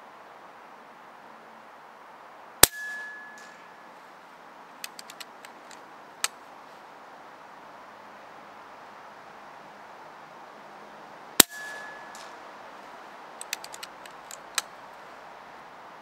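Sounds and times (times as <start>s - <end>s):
air rifle shot with ringing: 2.6s - 3.8s, 11.4s - 12.4s
light clicks: 4.8s - 6.4s, 13.4s - 14.7s.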